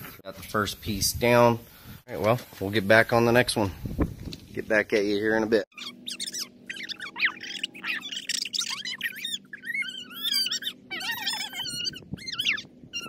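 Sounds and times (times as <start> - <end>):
small birds chirping: 5.7 - 13.0.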